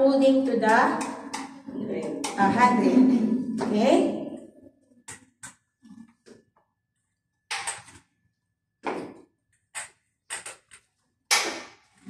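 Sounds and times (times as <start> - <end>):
cane and shoes on concrete steps: 8.8 - 10.7.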